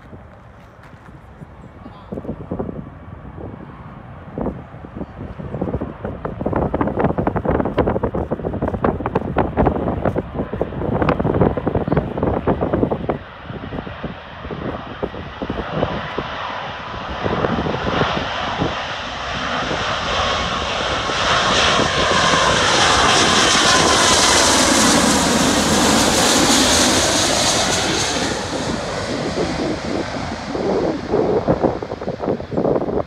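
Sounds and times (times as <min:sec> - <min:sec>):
jet airliner passing overhead: 0:00.0 - 0:33.0
wind buffeting microphone: 0:00.0 - 0:33.0.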